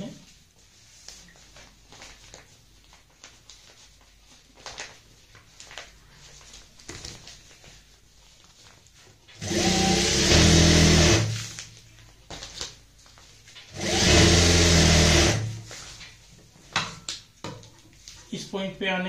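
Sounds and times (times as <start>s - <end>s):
sewing machine stitching fabric: 9.4s - 11.5s, 13.7s - 15.6s.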